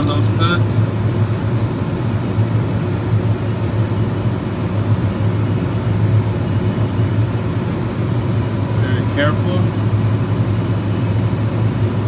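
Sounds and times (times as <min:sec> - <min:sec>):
low industrial hum: 0:00.0 - 0:12.0.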